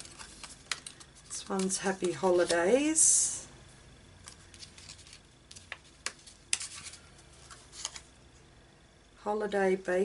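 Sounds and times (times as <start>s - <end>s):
paper rustling: 0.0s - 2.6s, 4.2s - 8.1s
sharp paper ticks and flicks: 0.0s - 2.6s, 4.3s - 7.0s.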